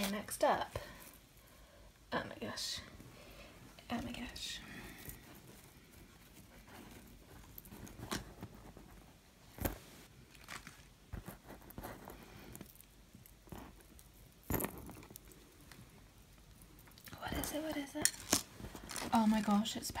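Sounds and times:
handling rustles: 3.6 - 20.0
metal ball-chain clinking: 11.8 - 15.7.

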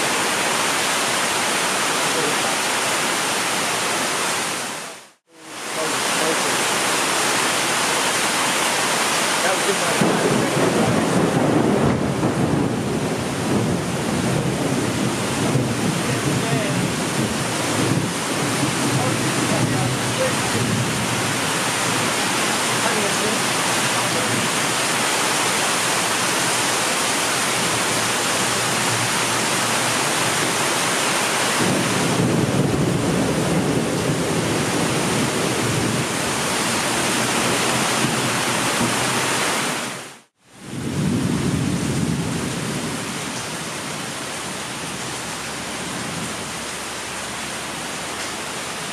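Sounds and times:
heavy rain pouring: 0.0 - 48.9
low rumble of thunder: 10.0 - 22.0, 31.6 - 36.2, 40.6 - 44.0.

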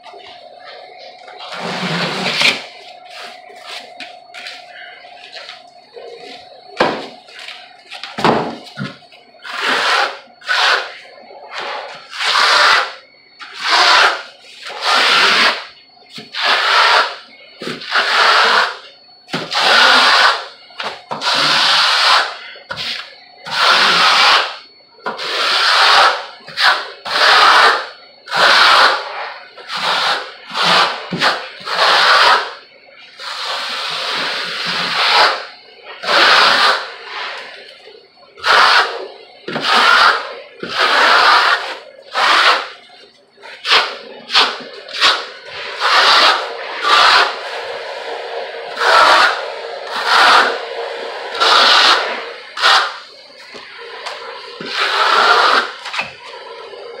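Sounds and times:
tool scraping across wall: 38.4 - 42.7, 43.6 - 47.7, 48.6 - 56.0.

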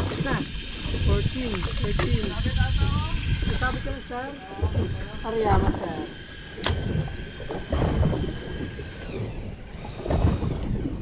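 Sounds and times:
faint steady whine: 0.0 - 11.0
wind buffeting microphone: 0.0 - 11.0
sharp click: 6.6 - 6.9.

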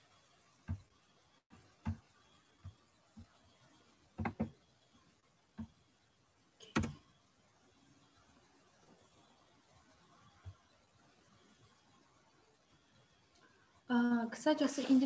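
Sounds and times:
soft knocks on desk: 4.2 - 4.5
computer mouse clicks: 4.2 - 4.6, 6.6 - 7.1.

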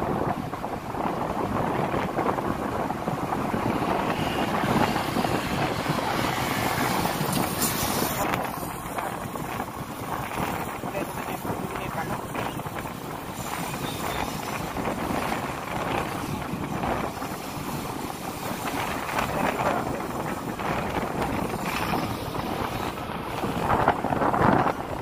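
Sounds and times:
motorcycle riding: 0.0 - 25.0
wind buffeting microphone: 0.0 - 25.0.

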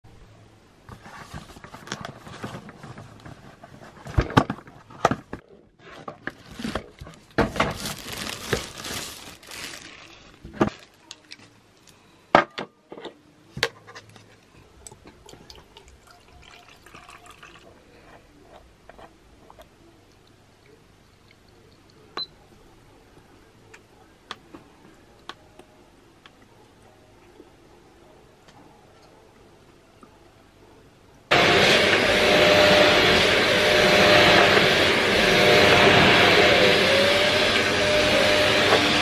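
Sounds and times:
rushing noise: 31.3 - 39.0.

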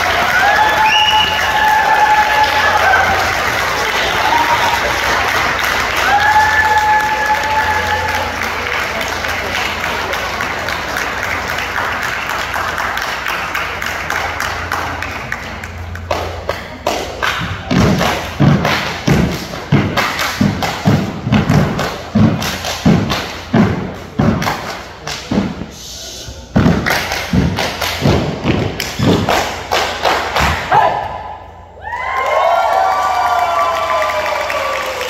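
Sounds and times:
sharp claps or slaps: 11.0 - 25.7, 26.6 - 30.8
loud rhythmic thumps: 16.0 - 30.7.

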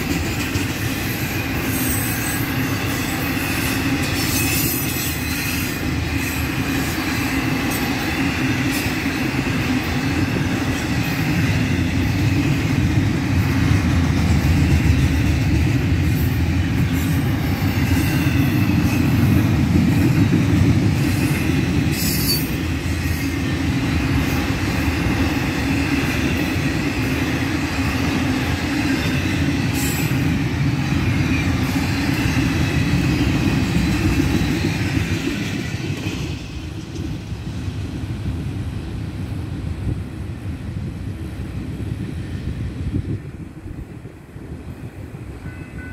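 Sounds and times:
freight train wheels rumbling: 0.0 - 45.9
high wheel squeal: 0.9 - 8.1.

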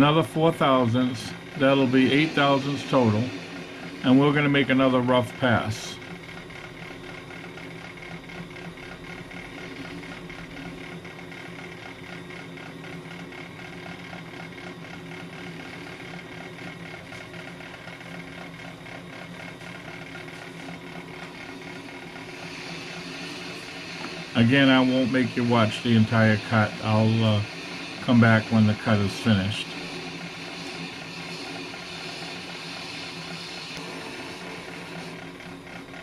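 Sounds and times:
brake lathe motor hum: 0.0 - 36.0
resurfacing hiss: 22.3 - 35.0.

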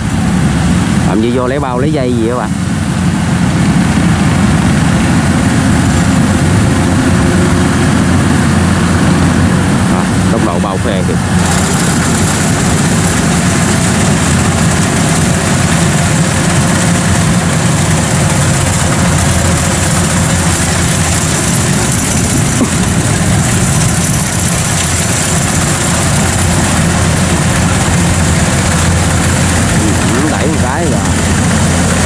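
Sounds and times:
diesel engine hum: 0.0 - 32.0
threshing machinery clatter: 11.2 - 32.0.

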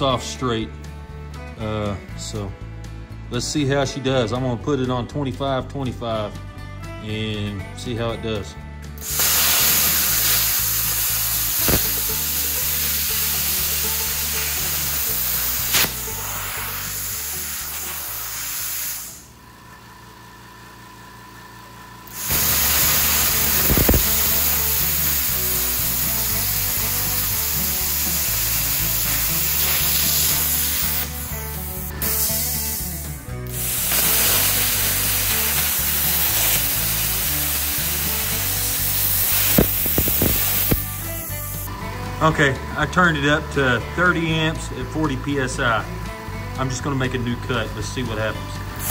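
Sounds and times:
plasma cutter hissing: 9.0 - 19.4, 22.1 - 41.7.

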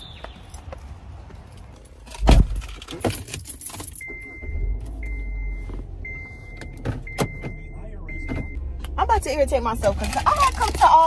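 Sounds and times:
keys jangling: 1.5 - 4.2.

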